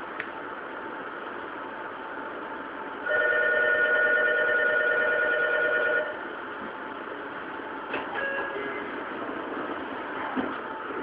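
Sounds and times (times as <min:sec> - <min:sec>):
train humming: 0:00.0 - 0:11.0
electronic departure bell ringing: 0:03.1 - 0:06.2, 0:08.2 - 0:08.6.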